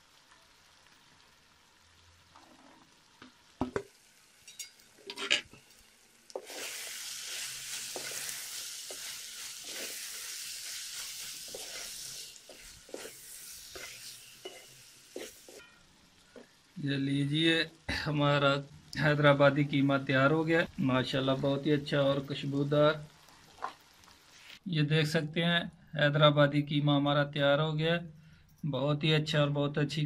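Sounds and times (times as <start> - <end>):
minced meat sizzling in a pan: 0.0 - 24.7
spatula scraping pan: 4.5 - 5.6, 6.4 - 15.8.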